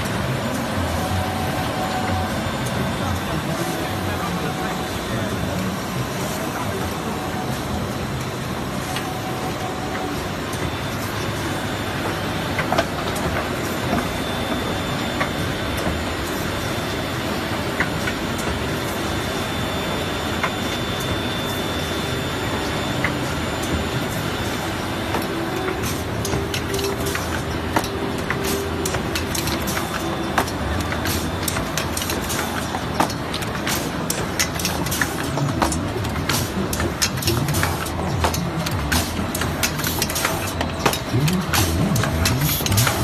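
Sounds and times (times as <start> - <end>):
machinery running: 0.0 - 43.0
sharp machine clicks: 25.1 - 43.0.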